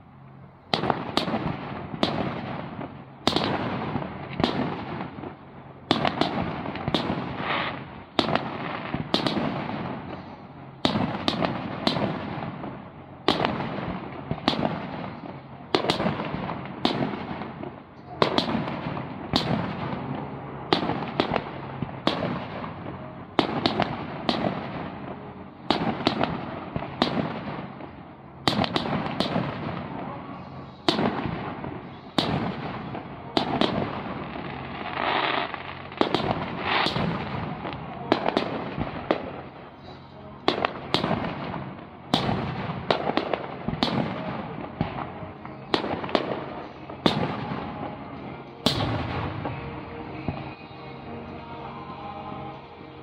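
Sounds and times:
firework shells bursting: 28.5s - 29.8s.

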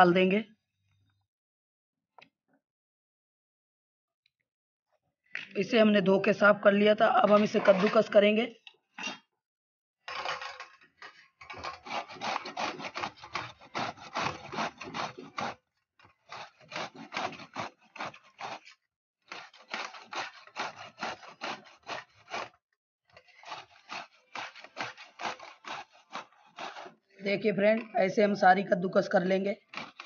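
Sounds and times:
gourd rasping on metal grater: 7.2s - 8.3s, 11.5s - 22.6s, 23.2s - 27.5s, 29.1s - 30.0s.

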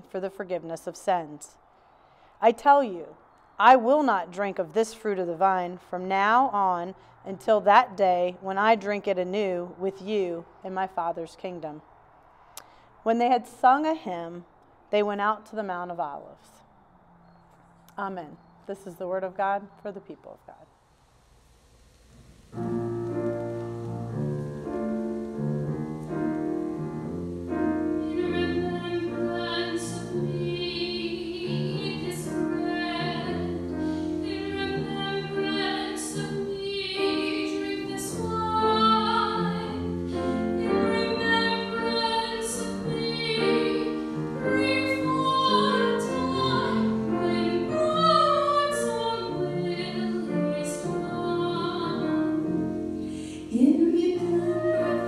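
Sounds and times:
piano accompaniment: 22.3s - 55.0s
women singing a hymn: 28.0s - 55.0s.

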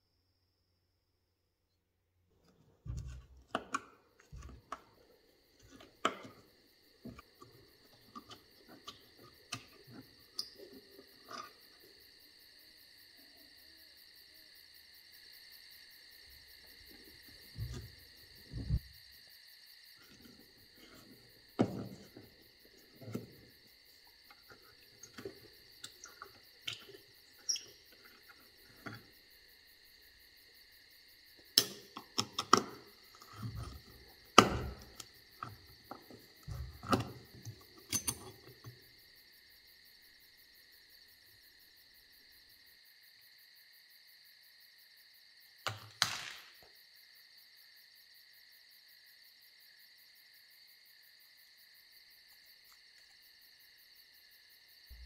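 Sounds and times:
screwdriver scraping on metal: 36.2s - 38.7s.

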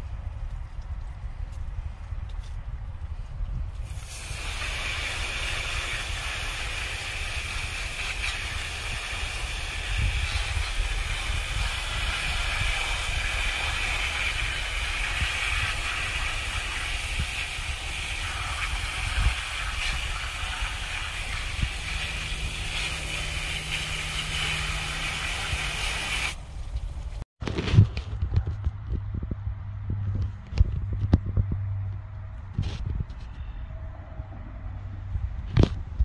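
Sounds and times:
hose spraying water on gravel: 3.8s - 26.5s.

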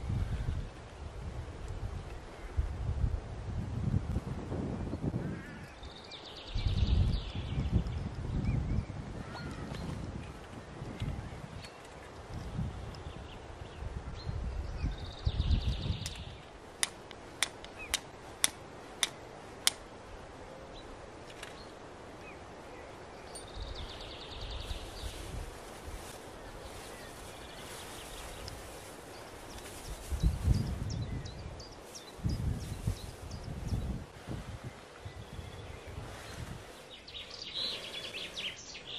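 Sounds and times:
flint striking steel clicks: 16.0s - 19.9s
dry grass rustling: 16.0s - 38.9s.

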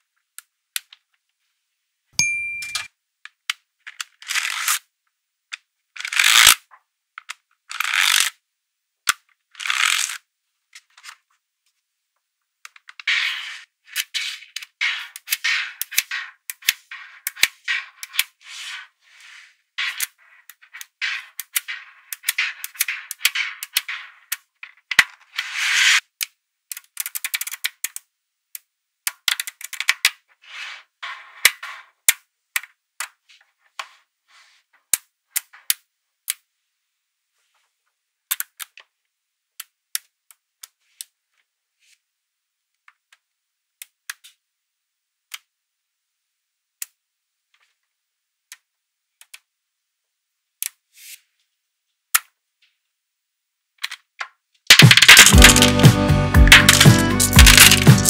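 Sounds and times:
magnetic balls clattering: 2.2s - 2.9s, 54.7s - 58.0s
magnetic balls clicking: 2.2s - 2.9s, 53.8s - 58.0s.

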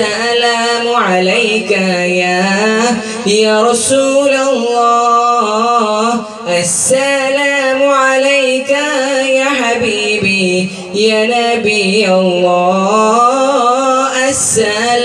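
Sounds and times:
man singing devotional song: 0.0s - 15.0s.

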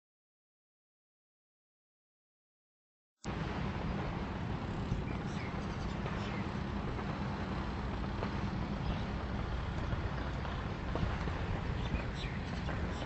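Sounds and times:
low outdoor rumble: 3.3s - 13.0s.

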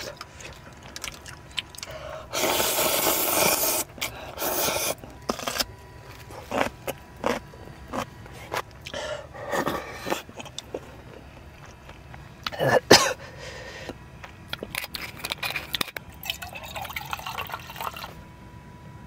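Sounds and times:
noodles slurped noisily: 0.0s - 8.6s, 9.4s - 11.8s, 14.6s - 18.2s
chewing with smacks and clicks: 0.0s - 12.6s, 13.8s - 18.2s.

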